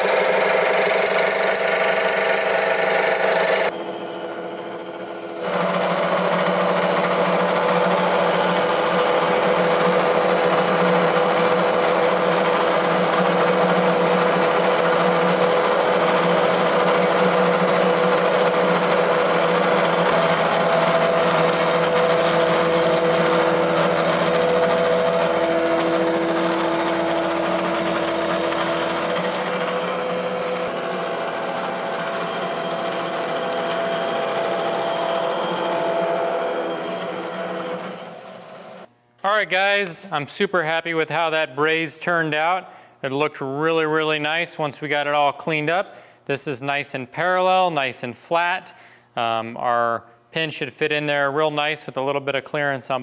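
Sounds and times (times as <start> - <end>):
milling machine cutting metal: 0.0 - 38.9.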